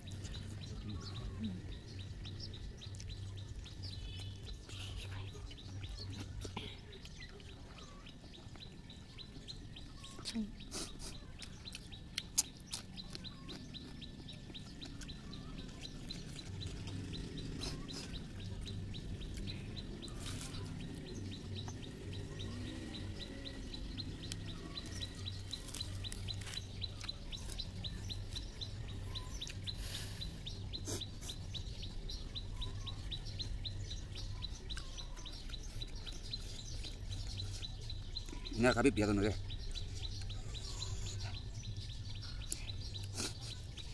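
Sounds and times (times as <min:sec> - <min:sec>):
eating clicks and smacks: 0:10.2 - 0:15.2.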